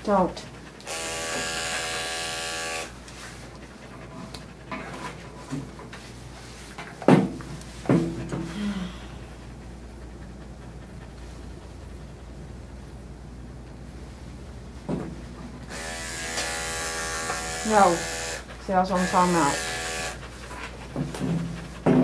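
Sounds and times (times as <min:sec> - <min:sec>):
dog panting: 0:00.0 - 0:06.8, 0:08.5 - 0:14.1, 0:16.9 - 0:22.0
electric clippers buzzing: 0:00.8 - 0:02.9, 0:15.7 - 0:18.4, 0:19.0 - 0:20.2.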